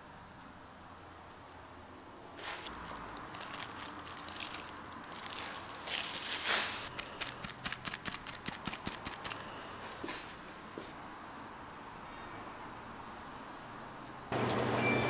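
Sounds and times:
hand handling clicks and crackles: 0:02.4 - 0:10.0
plastic rustle: 0:02.4 - 0:10.4.

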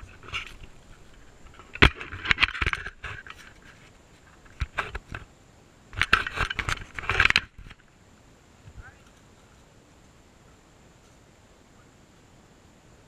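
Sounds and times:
camera knocking on ground: 0:00.0 - 0:03.6.

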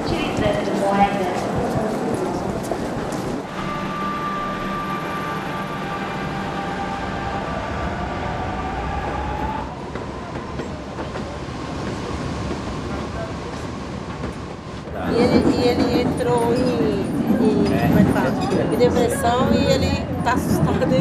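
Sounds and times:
electric train rumble: 0:00.0 - 0:21.0
rising whine: 0:03.5 - 0:10.0.

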